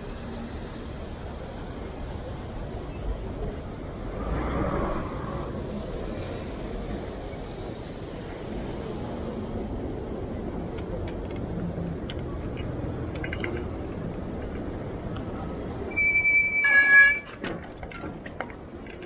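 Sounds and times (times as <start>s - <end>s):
traffic rumble: 0.0s - 19.0s
faint high squeaks: 14.8s - 17.4s.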